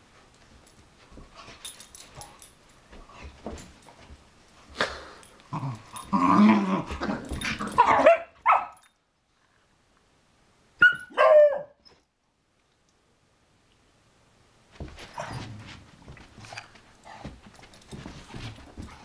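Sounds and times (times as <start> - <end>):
dogs scuffling: 0.0 - 4.8, 14.7 - 19.0
dogs growling playfully: 5.0 - 7.9.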